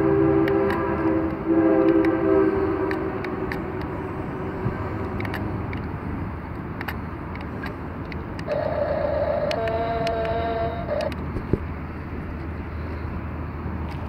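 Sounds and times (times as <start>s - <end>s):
small electric motors whining: 7.4s - 11.2s.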